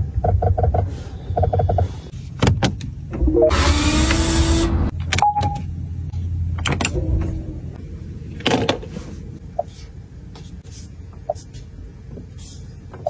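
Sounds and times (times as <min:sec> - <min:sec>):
low steady hum: 0:04.9 - 0:13.0.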